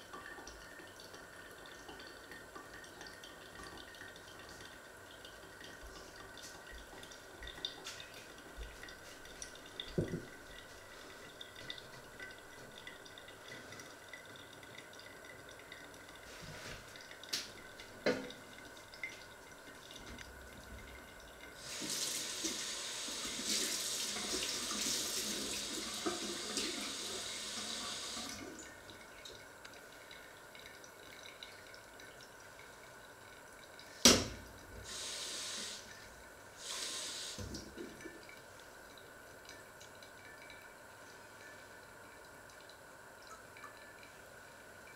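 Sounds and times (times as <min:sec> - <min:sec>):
tap running into sink: 0:09.8 - 0:10.4, 0:16.5 - 0:18.4, 0:34.0 - 0:35.0, 0:36.8 - 0:38.1.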